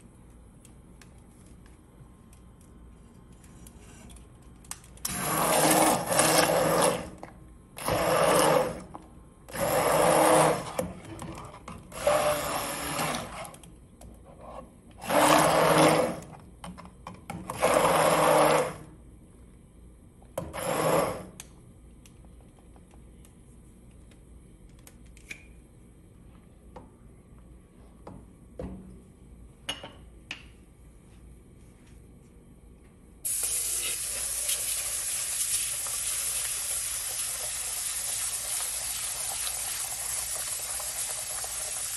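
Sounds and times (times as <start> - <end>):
immersion blender bursts: 5.1 - 7.2, 7.8 - 8.9, 9.5 - 10.9, 11.9 - 13.5, 15.0 - 16.2, 17.5 - 18.9, 20.5 - 21.3
kitchen tap running: 33.3 - 41.9.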